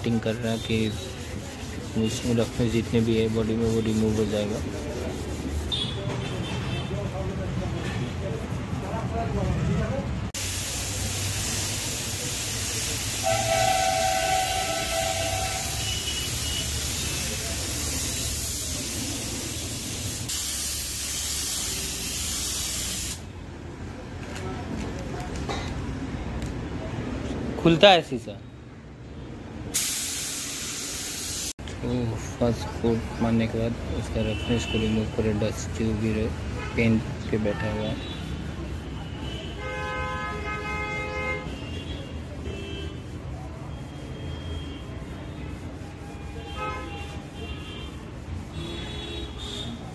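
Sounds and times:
vehicle horn honking: 0:05.7 - 0:06.9, 0:13.2 - 0:16.8, 0:39.2 - 0:43.0, 0:46.2 - 0:49.8
spray gun hissing: 0:10.4 - 0:23.2, 0:29.8 - 0:31.6.

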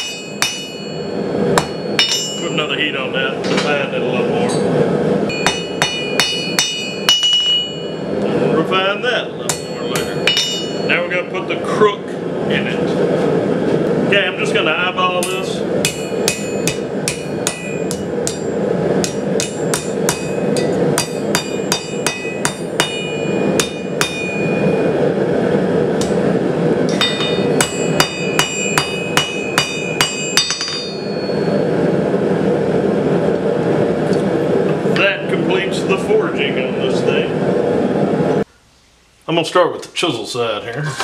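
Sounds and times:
hammer striking steel on anvil: 0:00.0 - 0:02.6, 0:05.3 - 0:08.0, 0:09.4 - 0:10.9, 0:15.2 - 0:24.8, 0:26.9 - 0:31.6.

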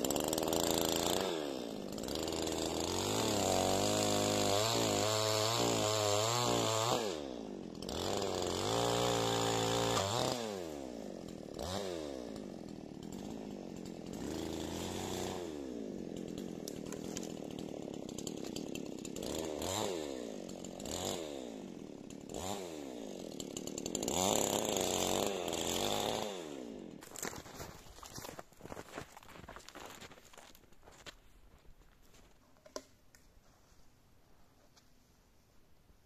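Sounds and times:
chainsaw revving and idling: 0:00.0 - 0:28.3.

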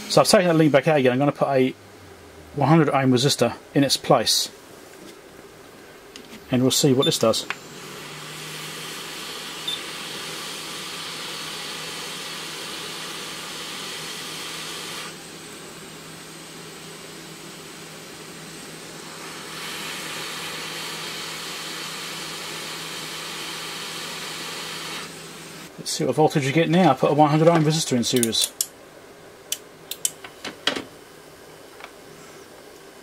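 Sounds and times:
hot air gun blowing: 0:07.6 - 0:15.6, 0:18.8 - 0:25.7.

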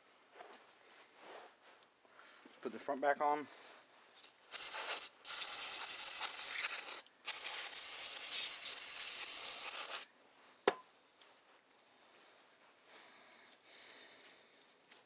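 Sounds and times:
aerosol spray hissing: 0:04.5 - 0:10.1.

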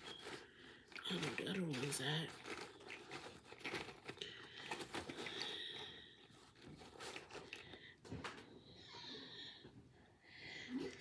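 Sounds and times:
rustling packaging: 0:00.0 - 0:08.7
soft breathing: 0:02.4 - 0:11.0.

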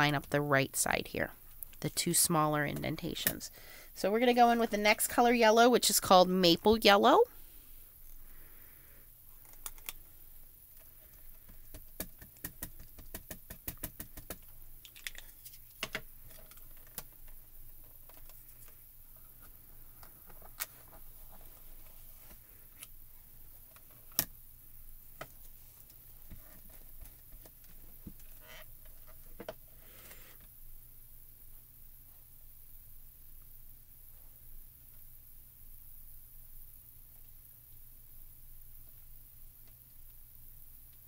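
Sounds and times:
ink cube tapping on stamp: 0:11.7 - 0:14.4.

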